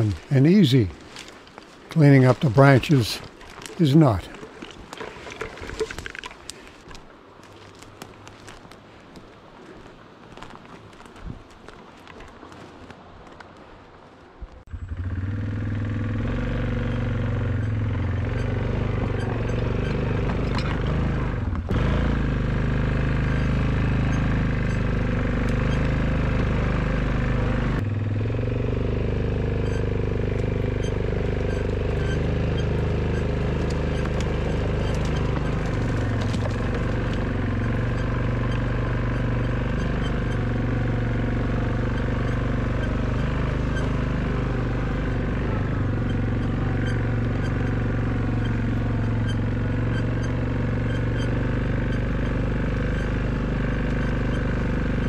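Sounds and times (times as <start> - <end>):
atv engine running: 0.0 - 4.7, 14.7 - 55.0.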